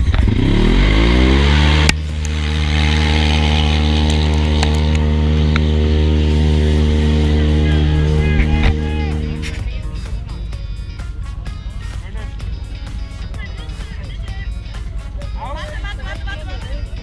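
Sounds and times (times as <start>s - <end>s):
engine revving under load: 0.0s - 15.2s.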